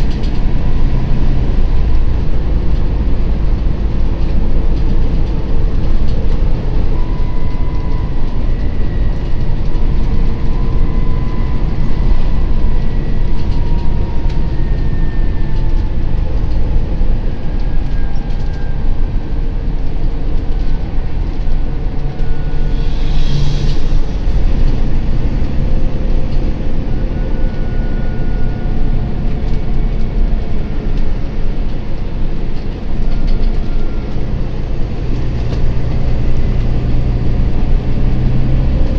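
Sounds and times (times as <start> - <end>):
bus engine and road rumble: 0.0 - 38.9
faint whine: 0.0 - 38.9
rattles over bumpy road: 0.0 - 38.9
brief hiss: 22.6 - 24.5.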